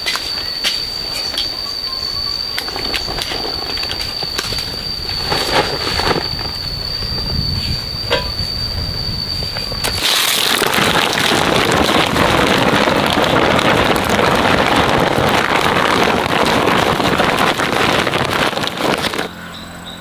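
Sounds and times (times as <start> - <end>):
fruits tumbling into basket: 9.8 - 19.3.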